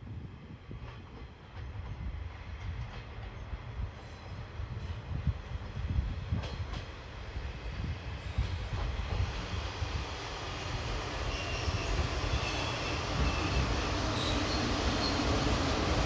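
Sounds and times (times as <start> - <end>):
diesel railcar rumble: 0.1 - 16.0
faint high squeal: 10.6 - 15.3.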